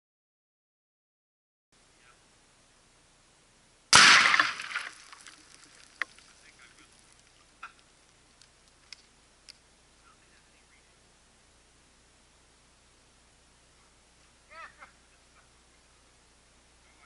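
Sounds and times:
loud explosion: 0:03.9 - 0:04.9
faint sharp ticks and pops: 0:04.7 - 0:09.6.

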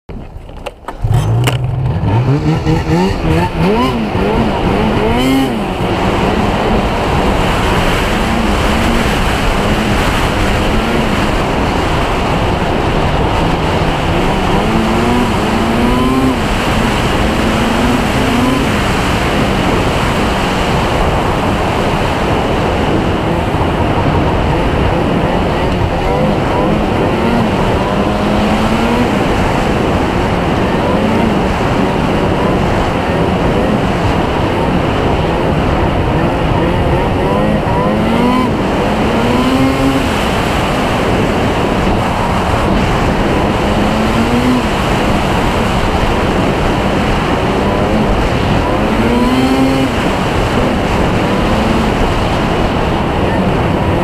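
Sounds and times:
snowmobile engine revving: 0:00.9 - 0:54.0.

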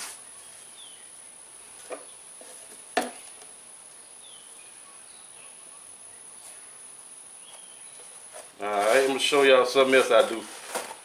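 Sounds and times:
faint chirps: 0:03.1 - 0:08.4.

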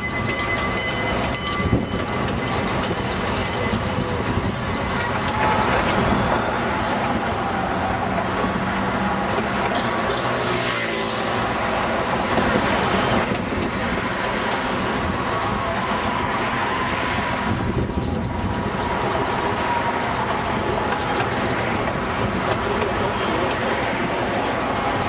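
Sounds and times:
cars passing on road: 0:00.0 - 0:25.0
miniature train engine running: 0:00.0 - 0:25.0.

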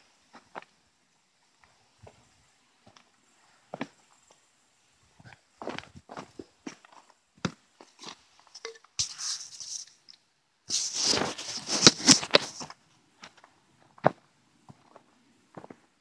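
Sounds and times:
boot footsteps on dirt: 0:05.6 - 0:08.2, 0:11.2 - 0:15.9
camera handling rustle and knocks: 0:11.0 - 0:12.7.

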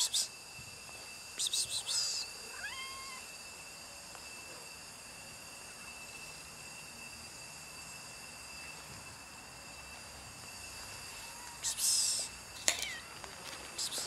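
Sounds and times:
faint high-pitched whine: 0:00.0 - 0:14.0
cat meowing: 0:02.5 - 0:03.3, 0:12.7 - 0:13.3.

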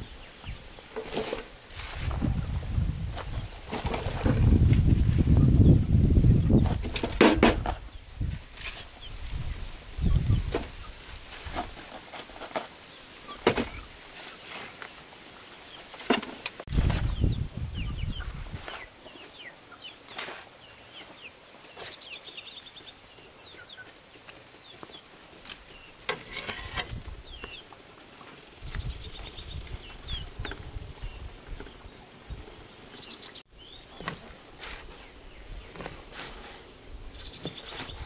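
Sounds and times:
knocks and scrapes of work: 0:00.9 - 0:02.3, 0:06.6 - 0:07.8, 0:16.0 - 0:17.0, 0:26.0 - 0:27.1
chickens clucking: 0:17.0 - 0:20.0.

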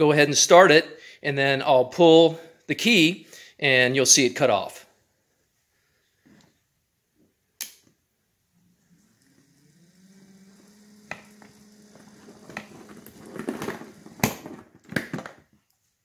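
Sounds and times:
electric motor humming: 0:08.5 - 0:14.5.

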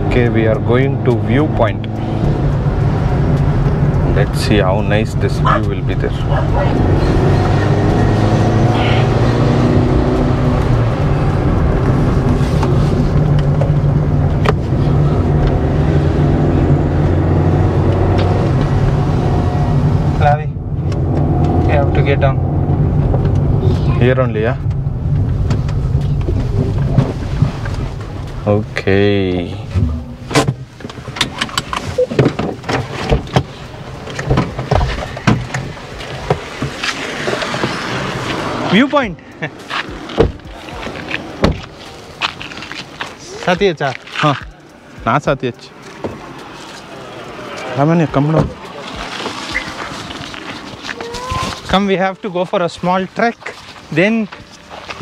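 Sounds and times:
car engine and road noise: 0:00.0 - 0:55.0
knocks and rattles in car: 0:29.6 - 0:37.8, 0:40.1 - 0:40.5, 0:41.4 - 0:41.7.

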